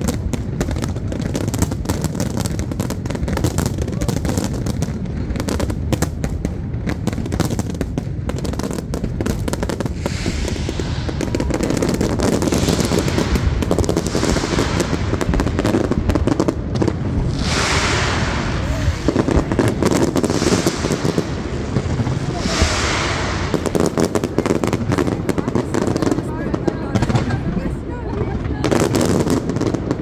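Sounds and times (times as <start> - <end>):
fireworks bangs and crackles: 0.0 - 30.0.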